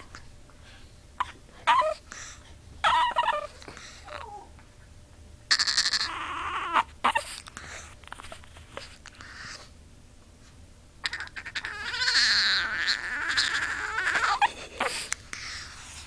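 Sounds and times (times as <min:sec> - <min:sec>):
small dog whining and squeaking: 0:01.2 - 0:02.0, 0:02.8 - 0:04.5, 0:05.5 - 0:09.7, 0:11.0 - 0:16.0.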